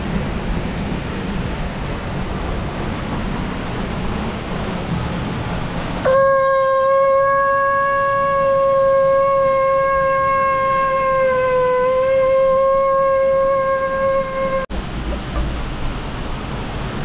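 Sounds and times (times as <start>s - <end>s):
conch shell blast: 6.1s - 14.6s.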